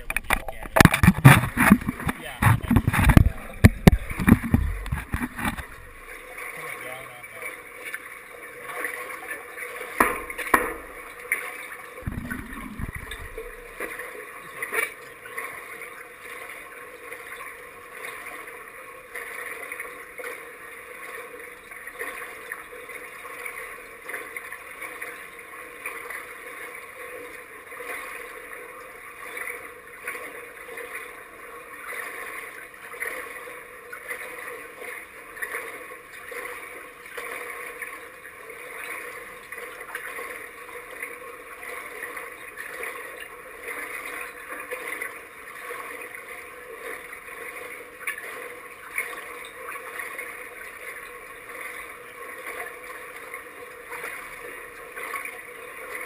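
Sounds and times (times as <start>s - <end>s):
steady hum: 0.0s - 24.5s
water lapping in pool: 0.0s - 56.0s.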